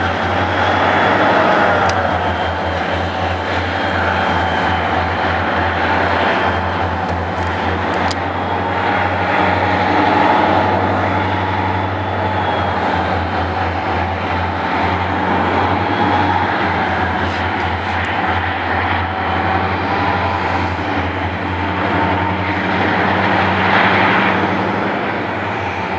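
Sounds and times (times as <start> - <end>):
diesel locomotive engines droning: 0.0 - 25.9.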